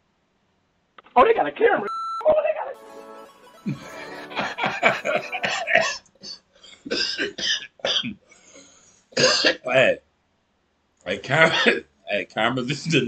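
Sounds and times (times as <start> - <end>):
man laughing: 3.7 - 6.0, 12.7 - 13.0
man coughing: 9.2 - 9.6, 11.4 - 11.8.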